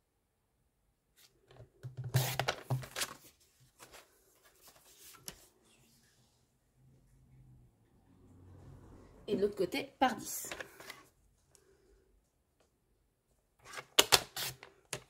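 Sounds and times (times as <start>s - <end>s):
paper rustling: 1.2s - 6.0s, 10.5s - 11.1s, 13.6s - 15.0s.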